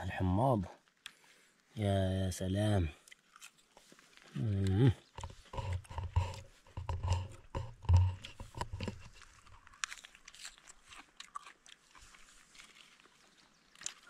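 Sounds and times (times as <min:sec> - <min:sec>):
leaf crunching being chewed: 0:02.9 - 0:14.0.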